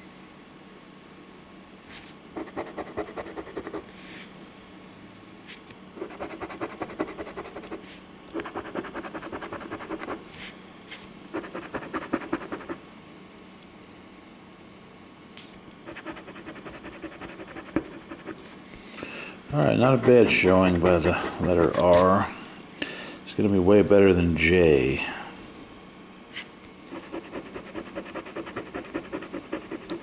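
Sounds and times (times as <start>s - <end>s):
coin scraping scratch card: 6.0s - 10.5s, 11.4s - 12.8s, 19.8s - 22.2s, 26.9s - 30.0s.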